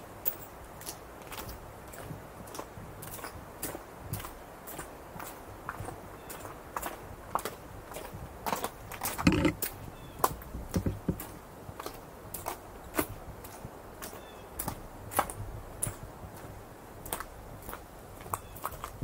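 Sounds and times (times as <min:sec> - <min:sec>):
boots crunching on loose stone: 0:08.5 - 0:11.4.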